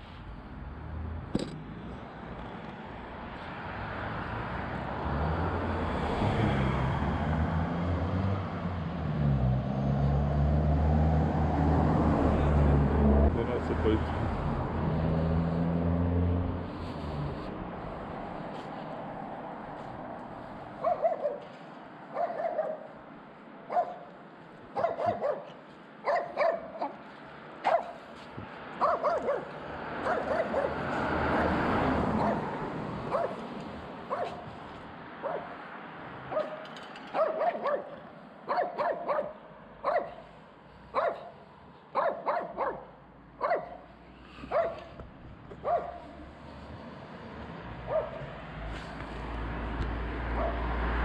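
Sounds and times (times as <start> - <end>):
dog barking: 20.8 - 21.5, 22.1 - 23.0, 23.7 - 24.1, 24.8 - 27.0, 27.6 - 28.0, 28.8 - 30.9, 32.2 - 33.4, 34.1 - 34.5, 35.2 - 35.6, 36.3 - 40.2, 40.9 - 43.9, 44.5 - 45.0, 45.6 - 46.2, 47.9 - 48.3, 50.3 - 50.7.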